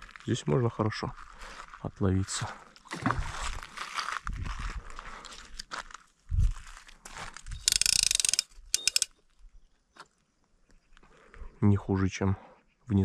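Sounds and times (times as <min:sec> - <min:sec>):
fishing reel ratcheting: 0:07.6 - 0:09.1.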